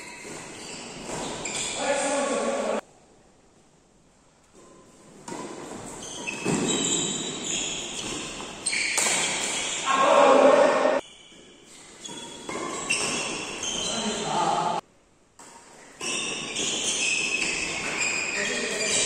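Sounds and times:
shoes squeaking on court: 0:00.0 - 0:02.6, 0:04.5 - 0:10.0, 0:11.0 - 0:14.5, 0:15.6 - 0:19.0
racket hitting shuttlecock: 0:00.1 - 0:01.8, 0:04.5 - 0:09.8, 0:11.3 - 0:13.9, 0:15.4 - 0:18.9.

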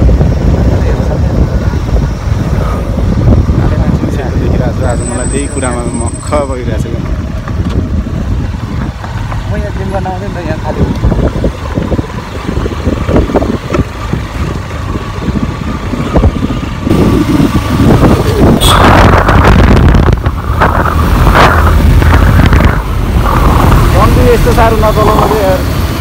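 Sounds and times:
wind buffeting microphone: 0:00.0 - 0:26.0
motorcycle engine running: 0:06.6 - 0:26.0.

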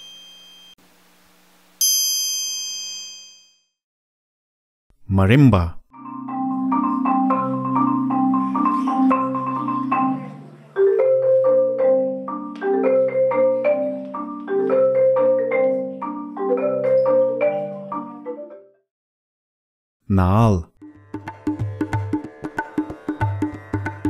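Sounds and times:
marimba notes: 0:06.0 - 0:18.6.

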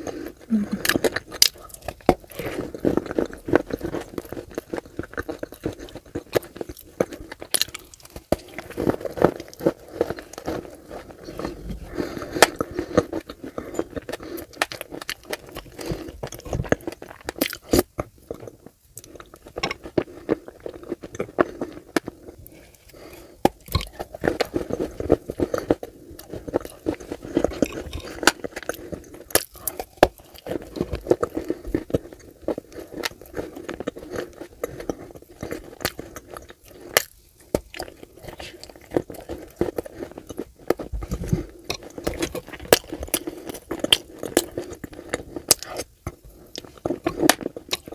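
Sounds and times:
wet mouth noise: 0:00.4 - 0:01.2
crunching clay being bitten: 0:00.5 - 0:18.4, 0:23.4 - 0:47.9.

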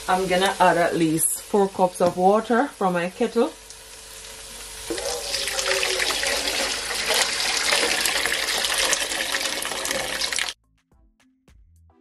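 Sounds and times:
water pouring into metal bowl: 0:04.9 - 0:10.6.

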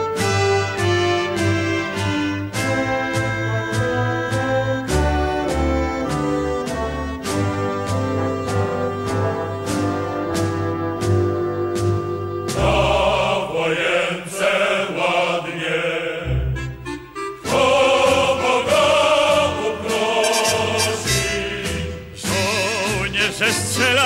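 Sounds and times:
instrumental accompaniment: 0:00.0 - 0:15.2, 0:16.2 - 0:24.0
choir singing: 0:12.4 - 0:16.7, 0:17.4 - 0:24.0.

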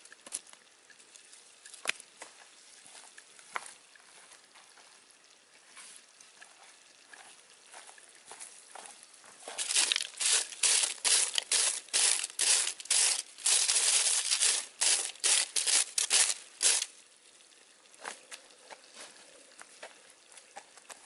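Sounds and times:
branch sweeping foil: 0:09.6 - 0:16.9.

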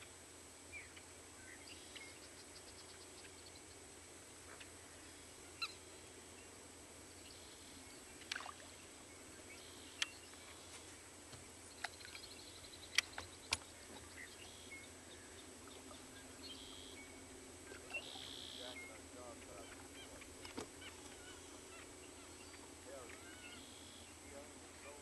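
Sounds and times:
short bird calls: 0:11.8 - 0:25.0.

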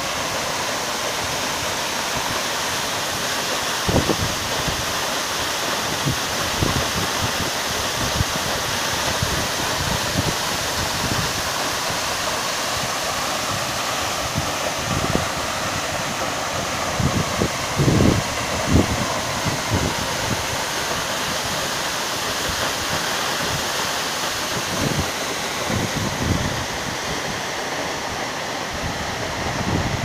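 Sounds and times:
waterfall roaring and splashing: 0:00.0 - 0:30.0.

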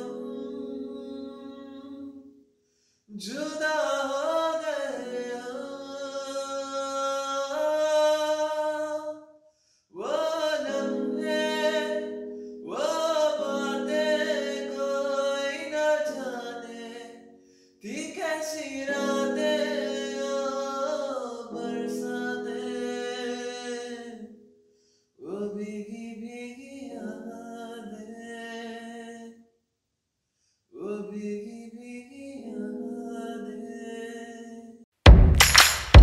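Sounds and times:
electronic keyboard chords: 0:00.0 - 0:02.2, 0:10.0 - 0:24.4, 0:26.8 - 0:28.4, 0:32.4 - 0:34.3
man singing long notes: 0:10.0 - 0:24.3.

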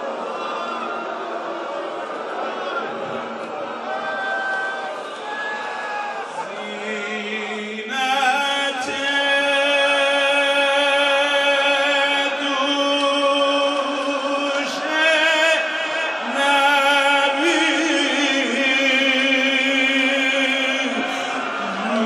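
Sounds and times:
man chanting a lament: 0:06.4 - 0:22.0.

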